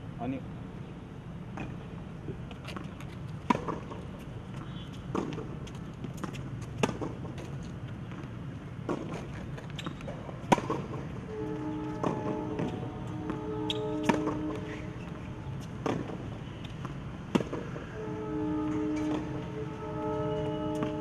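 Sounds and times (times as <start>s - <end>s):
racquets striking tennis ball: 2.5s - 11.2s, 11.9s - 17.8s
tennis ball bouncing: 2.6s - 11.2s, 11.9s - 17.8s, 20.7s - 21.0s.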